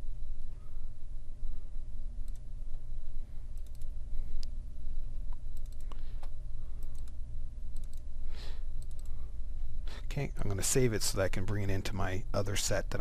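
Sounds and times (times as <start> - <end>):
low electrical hum: 0.0 - 13.0
computer mouse clicking: 2.2 - 2.5, 3.5 - 4.6, 5.3 - 8.1, 8.8 - 9.2.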